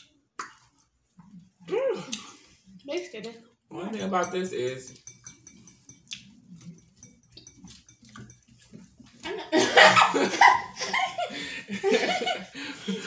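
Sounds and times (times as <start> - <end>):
faint eating noises: 0.0 - 9.4.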